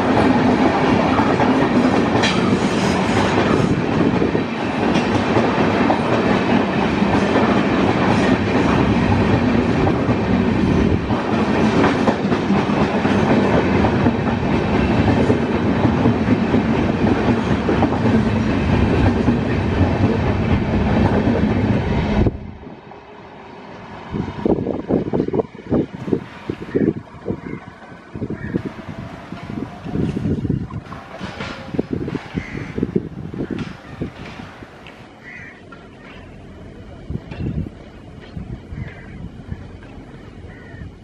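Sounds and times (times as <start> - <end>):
train coaches rumbling past: 0.0 - 41.0
wheels clattering over rail joints: 29.4 - 39.1.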